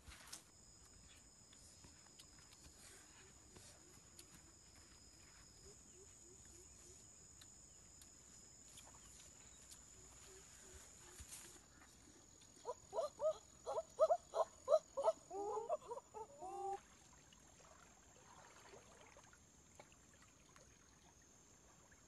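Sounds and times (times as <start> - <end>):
high-pitched insect drone: 0.2 - 11.8
footsteps rustling through grass: 8.8 - 12.0.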